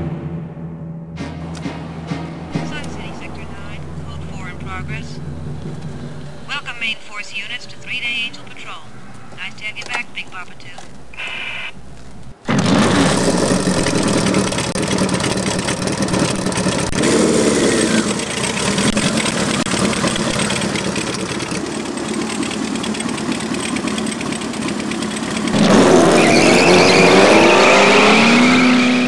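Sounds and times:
motorcycle engine revving: 0:12.4 - 0:29.0.

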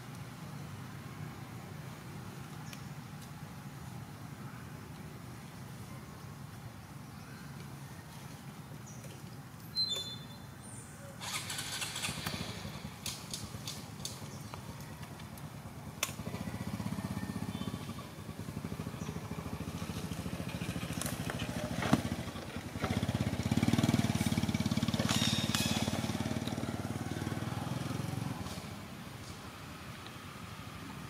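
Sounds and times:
engine running: 0:15.4 - 0:31.0.

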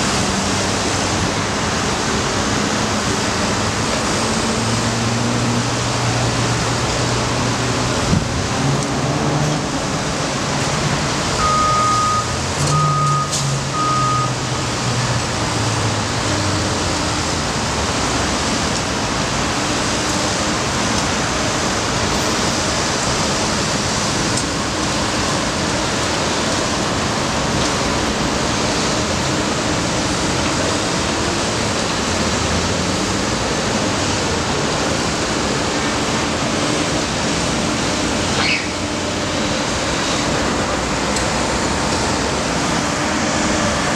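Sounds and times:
street traffic noise: 0:00.0 - 0:43.9
truck engine hum: 0:00.0 - 0:43.9
truck backup alarm beeps: 0:11.3 - 0:14.6.

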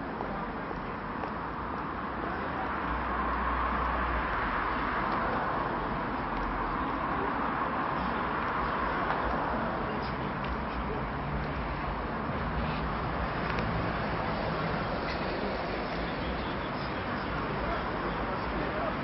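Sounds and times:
traffic hum: 0:00.0 - 0:19.0.

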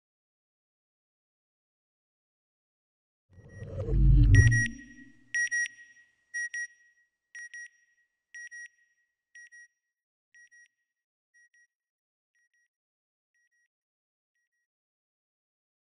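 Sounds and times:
high double beep: 0:03.6 - 0:05.1.

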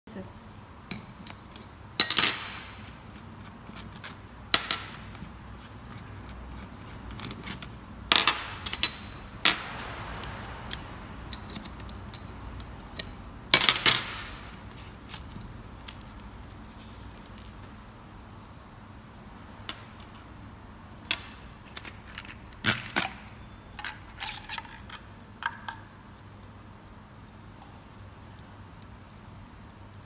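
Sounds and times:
metal tools clinking and clanking: 0:00.9 - 0:04.2, 0:06.8 - 0:17.5.

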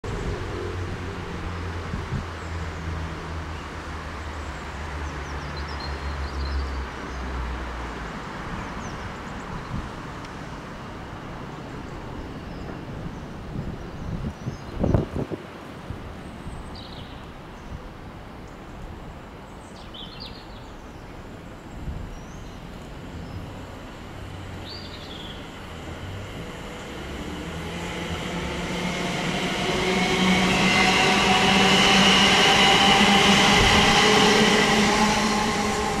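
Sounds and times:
electric train passing: 0:22.7 - 0:36.0
train whine: 0:22.8 - 0:36.0.

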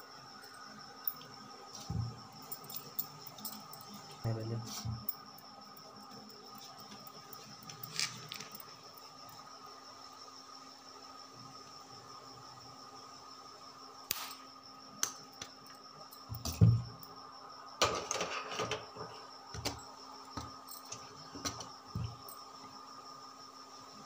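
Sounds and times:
faint steady hum: 0:00.0 - 0:24.0
utensils knocking and clattering: 0:17.8 - 0:19.8.

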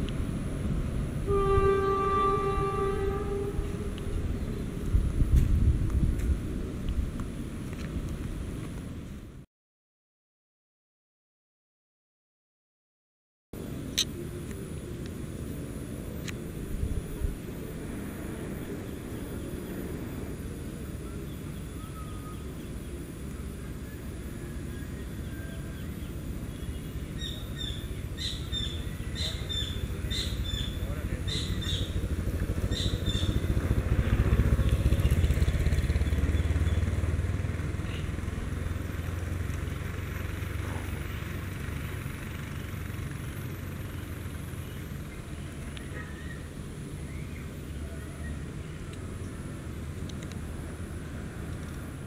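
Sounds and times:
low engine rumble: 0:00.0 - 0:09.4, 0:13.6 - 0:52.0
birds chirping: 0:01.6 - 0:05.1, 0:14.0 - 0:41.5, 0:43.8 - 0:52.0.

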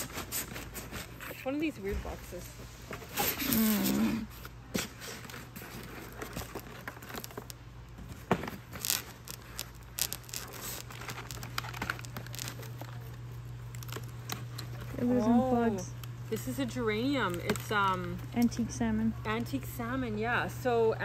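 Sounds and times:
steady low hum: 0:00.0 - 0:21.0
plastic sleeve crinkling: 0:03.0 - 0:18.7.

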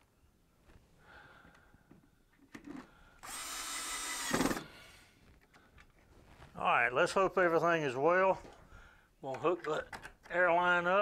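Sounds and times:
cordless drill whirring: 0:03.2 - 0:04.9.

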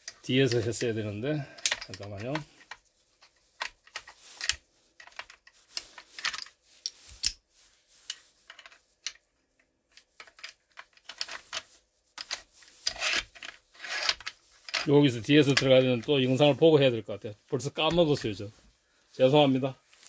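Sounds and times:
metal gun parts clicking: 0:01.6 - 0:07.4, 0:09.9 - 0:14.9.

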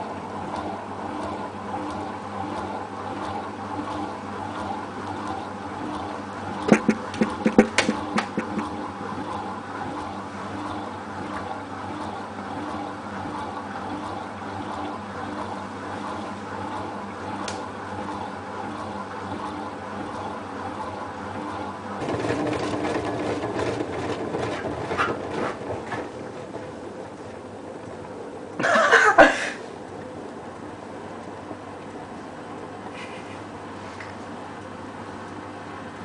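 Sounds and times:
washing machine spinning: 0:00.0 - 0:36.0
sharp knocks: 0:06.7 - 0:08.7.

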